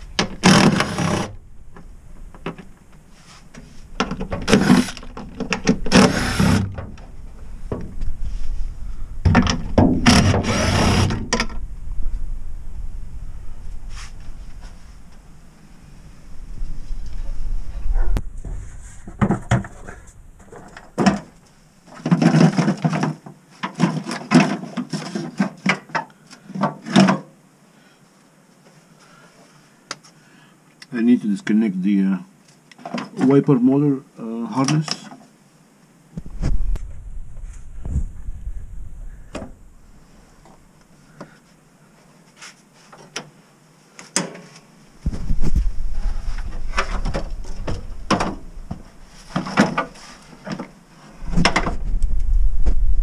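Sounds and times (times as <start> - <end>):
plastic panel knocking and rattling: 9.2 - 11.6.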